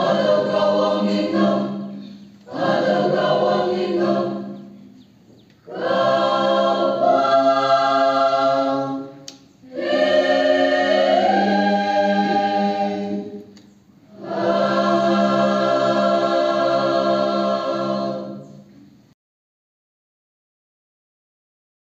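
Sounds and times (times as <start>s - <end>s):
mixed choir singing unaccompanied: 0.0s - 5.0s, 5.6s - 18.7s.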